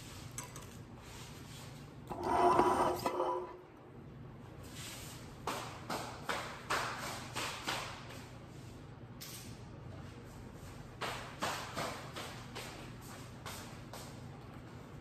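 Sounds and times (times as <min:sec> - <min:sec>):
kitchenware clattering: 0:02.1 - 0:03.6.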